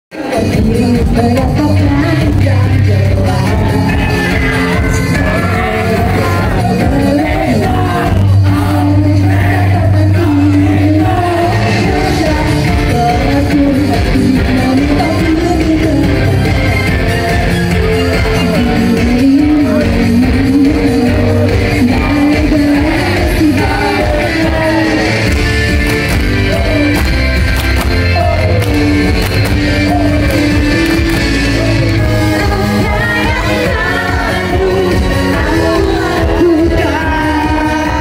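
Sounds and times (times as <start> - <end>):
loud pop-rock music: 0.1 - 38.0
women singing: 0.2 - 16.8, 18.3 - 25.3, 31.6 - 38.0.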